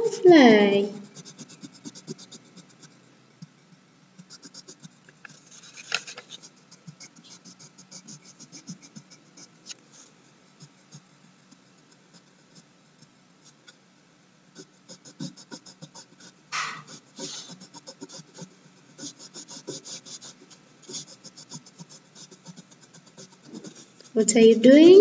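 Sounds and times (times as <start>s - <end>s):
crayon scratching on paper: 0.0s - 3.0s, 4.2s - 11.0s, 14.6s - 24.2s
brushing rustle on paper: 5.2s - 9.0s.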